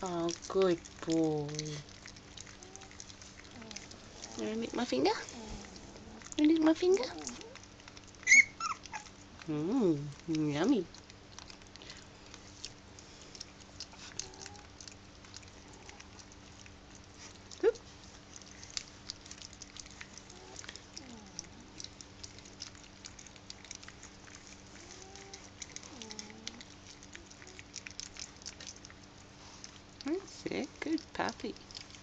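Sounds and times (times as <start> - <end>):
puppies lapping wet food: 0.0 - 32.0
puppy squeaks: 8.2 - 9.1.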